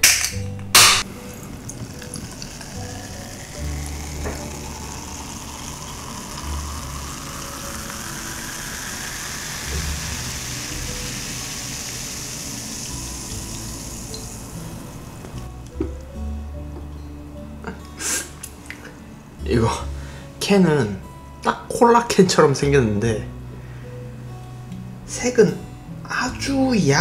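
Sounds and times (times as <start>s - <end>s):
soda pouring and fizzing: 1.0s - 15.5s.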